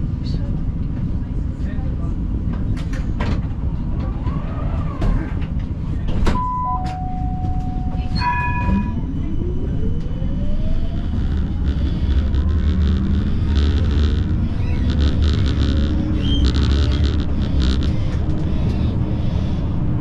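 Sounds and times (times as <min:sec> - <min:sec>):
tram rumbling: 0:00.0 - 0:06.4
traction motor whine: 0:09.9 - 0:20.0
two-note electronic signal tone: 0:10.3 - 0:19.6.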